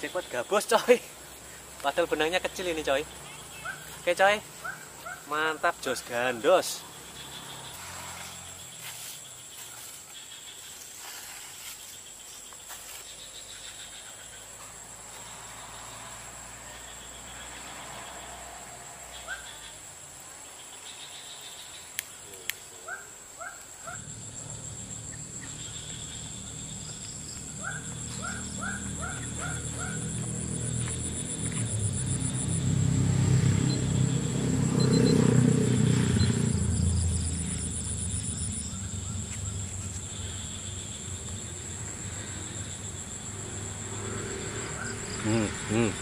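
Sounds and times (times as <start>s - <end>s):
insects droning: 0.0s - 46.0s
rising chirps: 23.9s - 46.0s.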